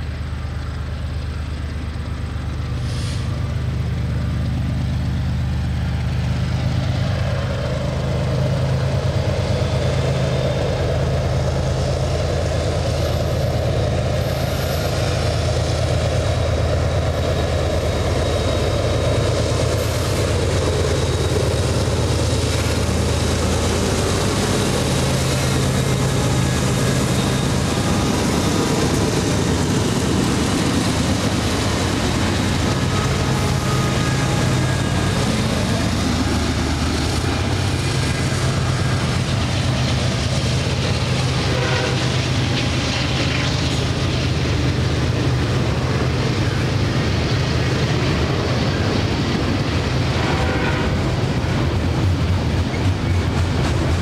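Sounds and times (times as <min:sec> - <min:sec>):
locomotive engine drone: 0:00.0 - 0:54.0.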